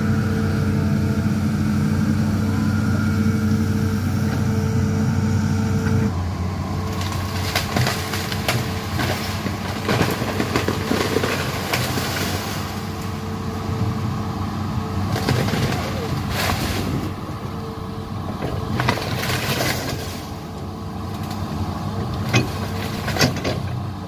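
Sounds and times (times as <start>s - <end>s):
excavator diesel engine running: 0.0s - 24.0s
branches cracking and snapping: 6.8s - 13.2s, 15.0s - 17.6s, 18.2s - 21.5s.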